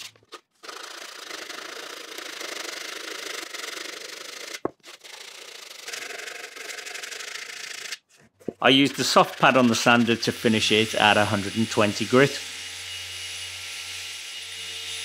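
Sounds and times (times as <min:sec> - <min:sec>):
sanding pad rubbing on wood: 0:00.6 - 0:04.5, 0:08.7 - 0:12.4.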